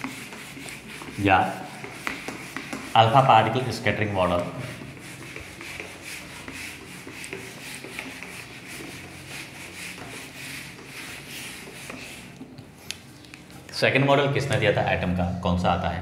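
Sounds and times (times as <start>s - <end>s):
eraser rubbing on whiteboard: 0.0s - 12.5s.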